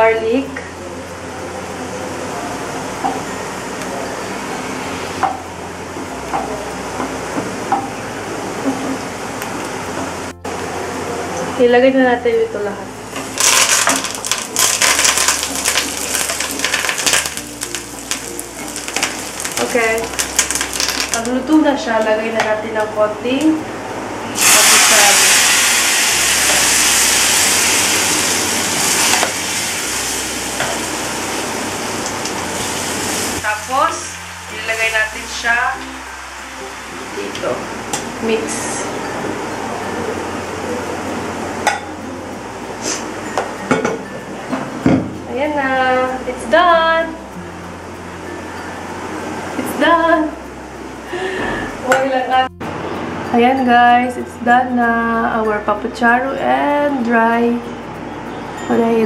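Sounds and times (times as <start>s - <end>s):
garlic sizzling in a frying pan: 11.4s - 23.6s, 24.2s - 39.1s, 44.8s - 48.0s.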